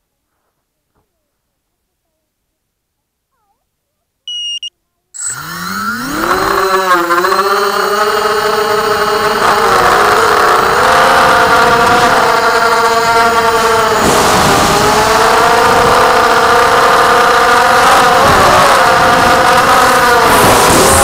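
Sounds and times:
short high beeps: 0:04.3 - 0:07.6
quadcopter motors whining: 0:05.2 - 0:21.0.

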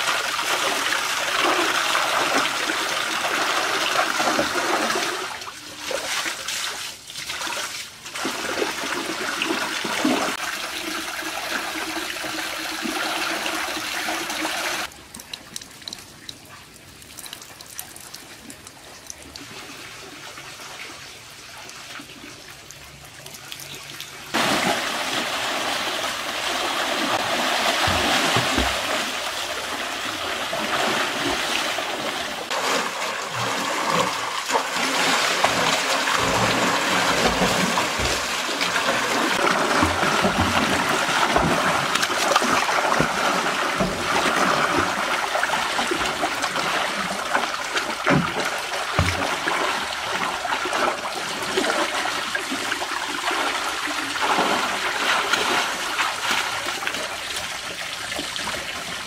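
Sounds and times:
water pouring and splashing: 0:00.0 - 0:59.0
people wading in water: 0:22.7 - 0:59.0.

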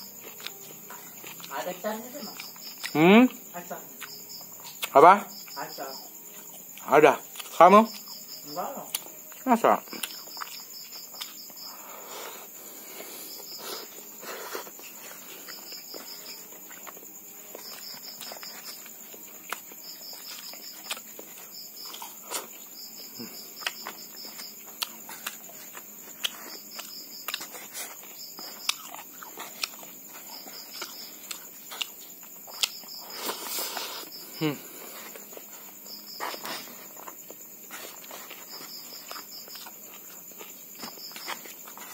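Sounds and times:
insect pulsed chirps: 0:00.0 - 0:41.8
insect continuous high trill: 0:00.0 - 0:41.9
wet chewing and lip smacks: 0:08.9 - 0:11.6, 0:14.6 - 0:22.6, 0:23.6 - 0:33.1.

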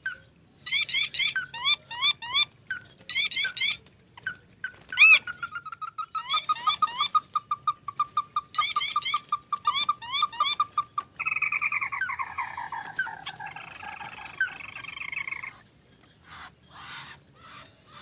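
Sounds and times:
wings rustling: 0:03.8 - 0:05.5.

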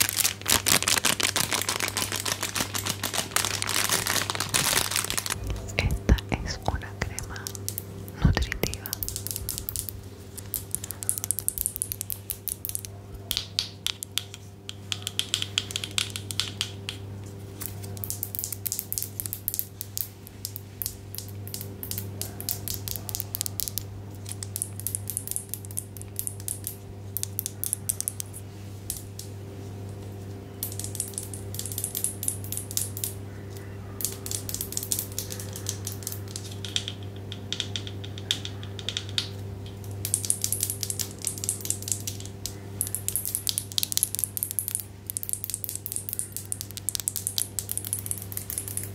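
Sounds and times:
rapid clicking and crackling: 0:00.0 - 0:05.4, 0:34.0 - 0:48.9
low electrical hum: 0:00.0 - 0:48.9.

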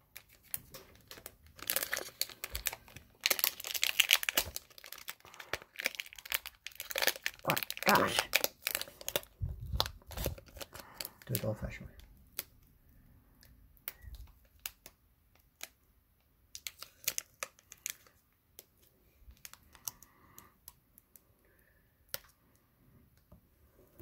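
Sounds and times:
foil wrapper crinkling: 0:00.1 - 0:12.7, 0:13.9 - 0:15.8, 0:16.5 - 0:20.2.

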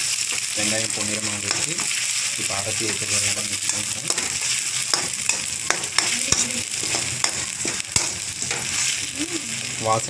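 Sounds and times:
spatula stirring and scraping pan: 0:00.0 - 0:09.9
onions sizzling in hot oil: 0:00.0 - 0:10.0
spatula clicking on metal: 0:03.7 - 0:08.7.

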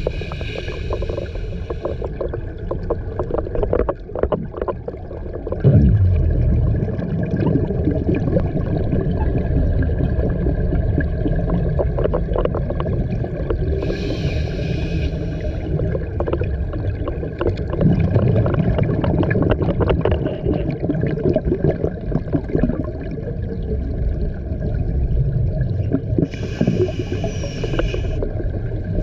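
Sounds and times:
regulator hissing inhalation: 0:00.0 - 0:02.1, 0:13.8 - 0:15.7, 0:26.3 - 0:28.2
exhaled bubbles rumbling: 0:00.0 - 0:29.0.

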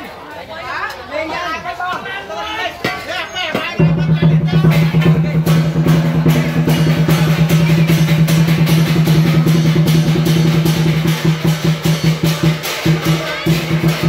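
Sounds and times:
fast drum strokes: 0:03.8 - 0:14.0.

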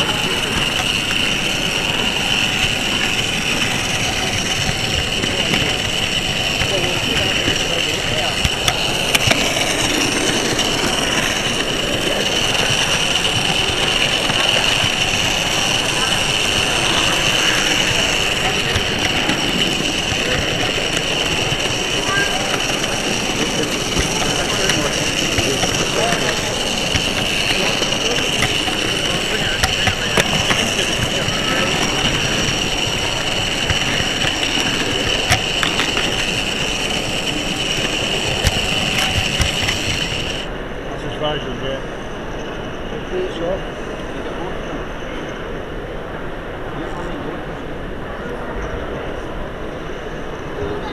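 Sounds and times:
wheels clicking over rail joints: 0:00.0 - 0:40.5
crowd chatter: 0:00.0 - 0:50.9
model train running with whine: 0:00.0 - 0:50.9.

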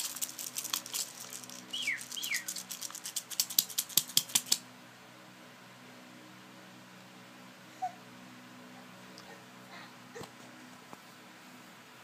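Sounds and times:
paper crumpling: 0:00.0 - 0:04.0.

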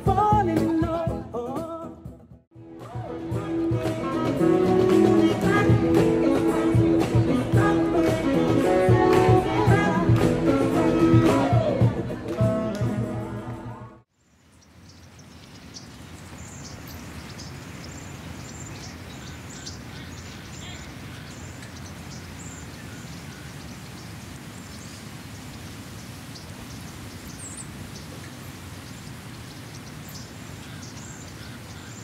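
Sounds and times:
street hum: 0:00.0 - 0:32.0
guitar music: 0:02.6 - 0:13.9
small birds chirping: 0:14.2 - 0:32.0.

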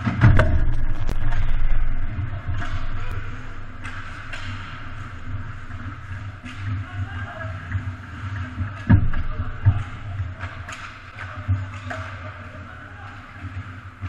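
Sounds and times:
loud low rumbling: 0:00.2 - 0:06.9.

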